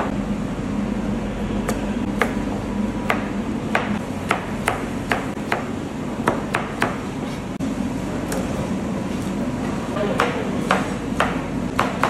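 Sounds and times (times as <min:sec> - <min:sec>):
steady low hum: 0:00.0 - 0:12.0
knife chopping on cutting board: 0:03.1 - 0:07.0.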